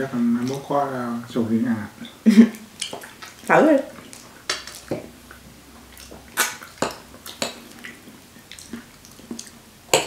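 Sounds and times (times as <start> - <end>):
wet mouth eating sounds: 2.0 - 10.0.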